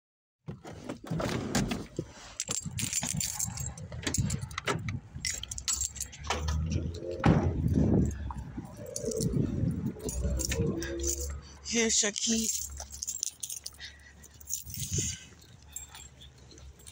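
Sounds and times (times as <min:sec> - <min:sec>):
keys jangling: 0:02.4 - 0:16.9
low rumble: 0:03.5 - 0:11.8.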